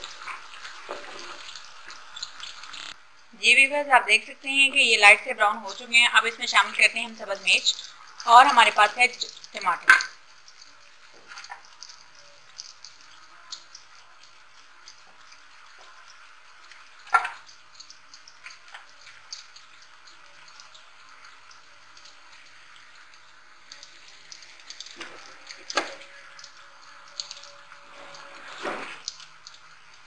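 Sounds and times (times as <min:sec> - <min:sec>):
onions sizzling in oil: 0:00.0 - 0:30.0.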